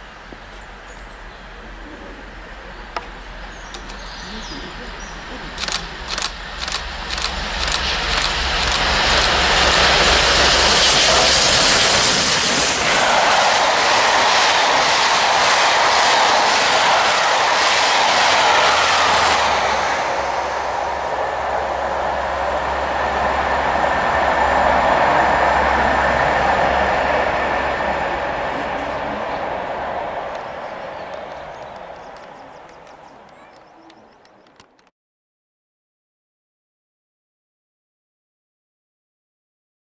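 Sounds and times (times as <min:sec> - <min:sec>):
steam locomotive exhaust beats: 0:00.0 - 0:34.9
train wheels clattering: 0:03.0 - 0:04.4, 0:05.6 - 0:13.2, 0:27.6 - 0:34.9.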